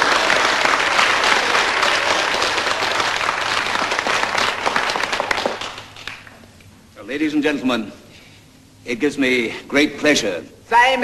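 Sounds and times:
roomful of people applauding: 0.0 - 6.5.

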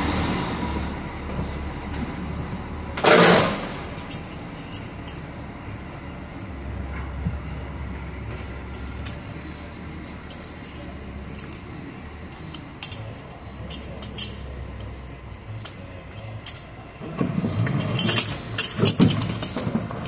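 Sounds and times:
metal buckle clinking: 3.0 - 7.1, 8.4 - 15.0, 15.6 - 16.8, 17.4 - 20.0.

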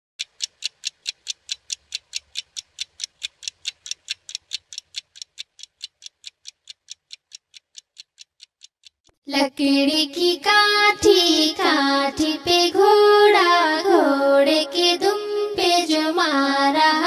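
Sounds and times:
wall clock ticking: 0.2 - 9.2.

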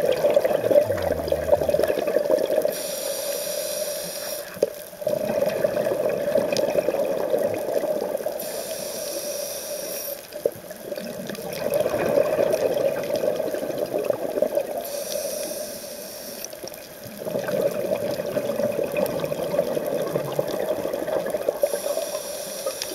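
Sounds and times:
exhaled bubbles underwater: 0.0 - 3.0, 5.0 - 8.6, 10.4 - 14.9, 16.6 - 22.9
regulator inhale hiss: 2.7 - 4.6, 8.4 - 10.3, 14.8 - 16.6, 21.6 - 22.9.

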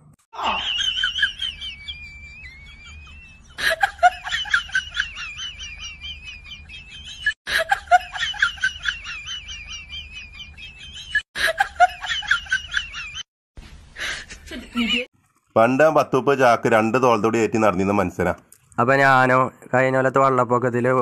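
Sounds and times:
high-pitched chirping cackling: 0.4 - 7.4, 8.4 - 11.2.

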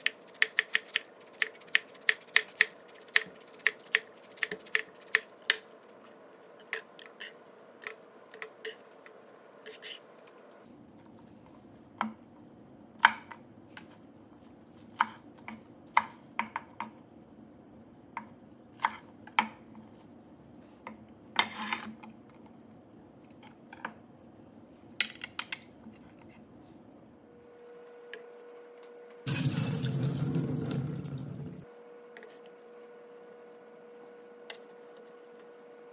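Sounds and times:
knife scraping: 9.6 - 10.1.

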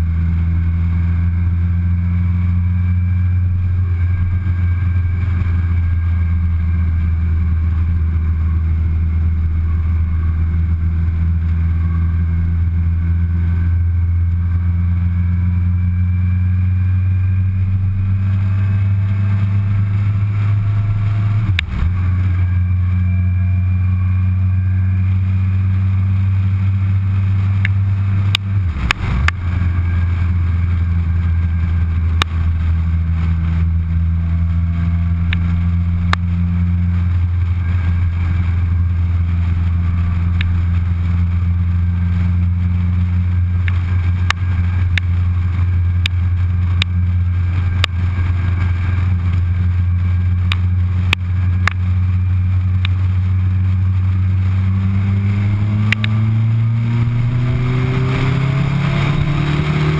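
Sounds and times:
motorcycle engine cruising: 0.0 - 59.9
wind rush: 17.0 - 59.9.

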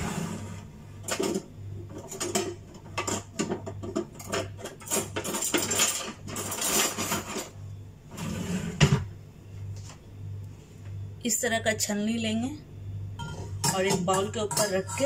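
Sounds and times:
metal utensils and pans clattering: 1.0 - 7.6, 13.2 - 15.0.

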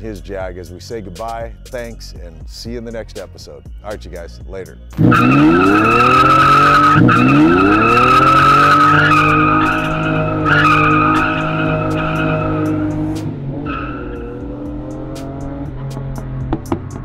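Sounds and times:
tyres squealing: 5.0 - 14.4
car engine revving: 5.0 - 17.0.

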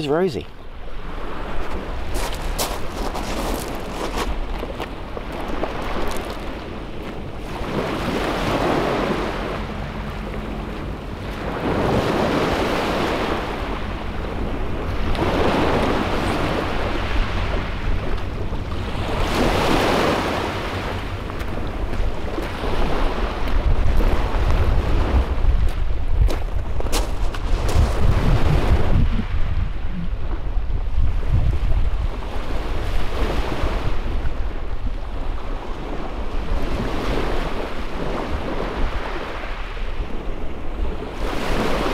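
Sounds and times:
wind buffeting microphone: 0.7 - 41.9
waves washing onto shingle: 1.0 - 29.4.

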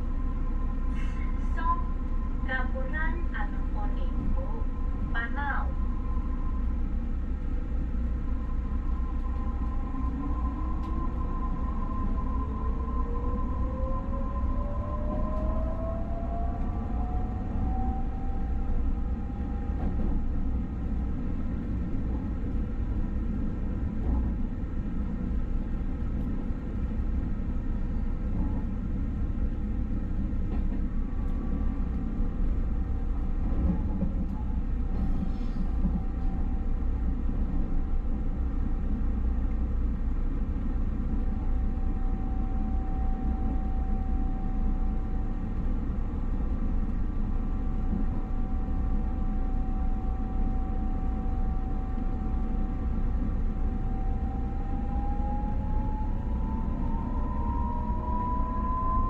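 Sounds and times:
train wheels rumbling on rails: 6.9 - 58.8
faint steady tones: 41.1 - 59.0.

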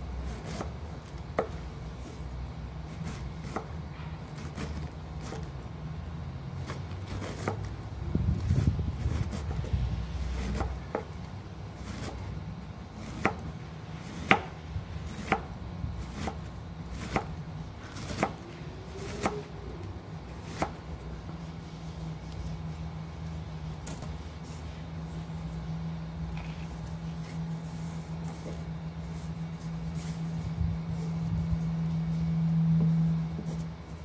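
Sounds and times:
knife slicing cabbage: 0.1 - 5.6, 6.6 - 21.0.

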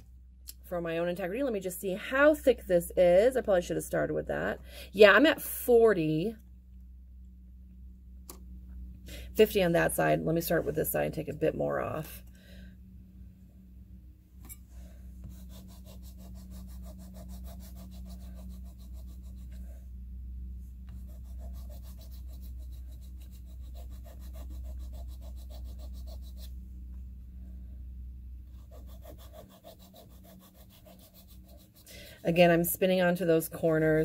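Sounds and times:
file rasping on reed cane: 15.2 - 19.6, 20.9 - 26.5, 28.6 - 31.9.

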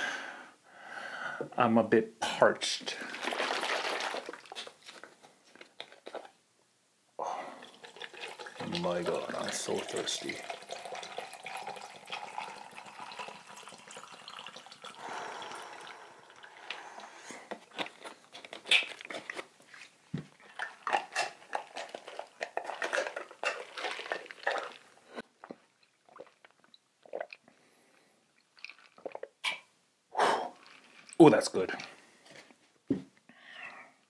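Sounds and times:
liquid pouring: 2.8 - 5.0, 7.4 - 18.5, 20.5 - 27.5, 28.4 - 29.4, 30.6 - 32.1
gulping and swallowing: 25.4 - 27.5, 28.6 - 29.7.

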